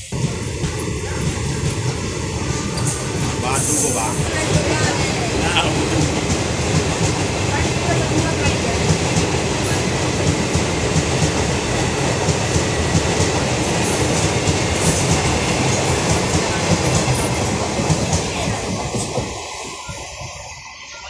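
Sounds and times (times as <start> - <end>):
train wheels clattering over rails: 0.0 - 20.4.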